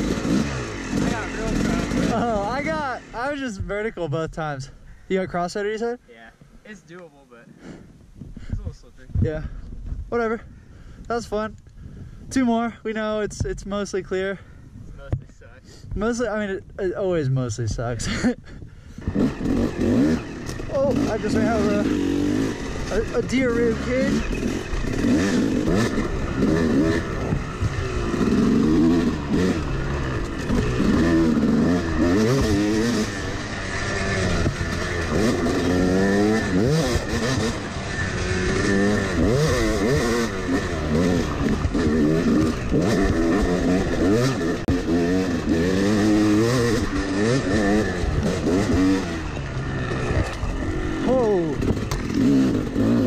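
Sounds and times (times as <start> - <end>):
dirt bike engine revving: 0.0 - 4.8, 18.9 - 53.0.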